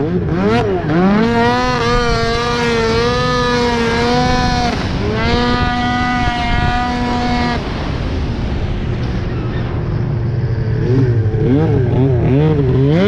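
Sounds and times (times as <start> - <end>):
snowmobile engine revving: 0.0 - 8.6, 10.2 - 13.0.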